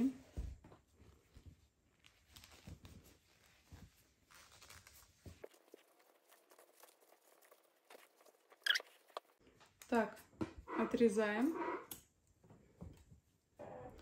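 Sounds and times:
crochet hook rustling yarn: 0.1s - 10.1s.

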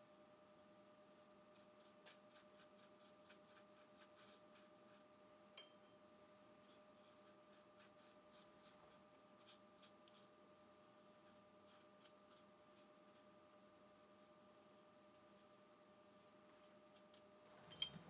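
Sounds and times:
faint steady hum: 0.0s - 18.0s
brush scratching on paper: 1.5s - 5.1s, 6.6s - 10.4s, 11.0s - 13.5s.

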